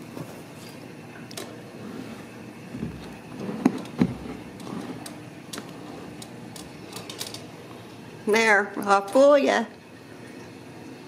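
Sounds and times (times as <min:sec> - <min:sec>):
rustling and handling noise: 0:01.4 - 0:07.5
knocks on furniture: 0:02.7 - 0:04.4.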